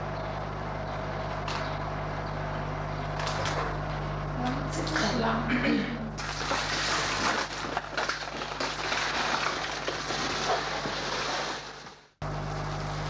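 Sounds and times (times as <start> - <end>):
steady electrical hum: 0.0 - 13.0
rubber skin and plastic rustling: 6.2 - 12.0.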